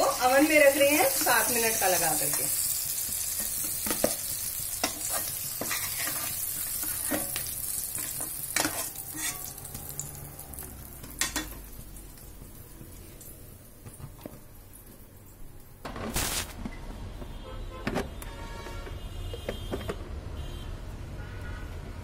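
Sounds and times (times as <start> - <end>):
oil sizzling: 0.0 - 16.6
metal spatula scraping: 4.8 - 7.4, 8.0 - 9.6.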